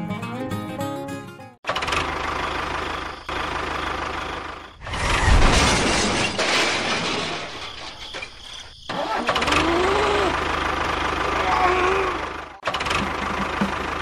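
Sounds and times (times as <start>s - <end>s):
tractor engine chugging: 1.7s - 4.8s, 9.0s - 14.0s.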